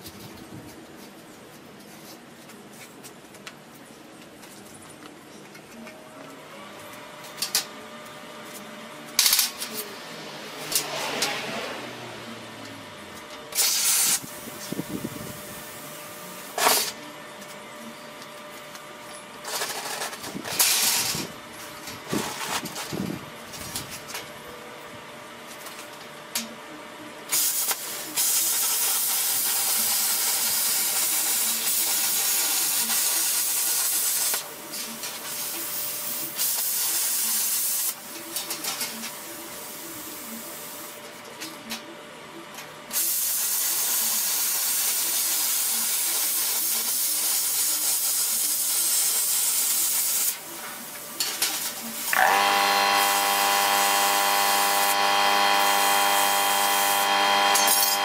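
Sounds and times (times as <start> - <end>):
power tool cutting steel plate: 52.1 - 58.0.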